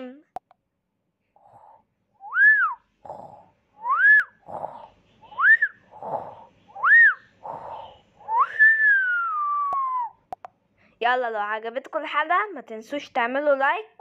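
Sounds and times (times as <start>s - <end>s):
cartoon snoring: 1.4s - 2.0s, 3.0s - 5.0s, 5.7s - 6.6s, 7.3s - 8.4s.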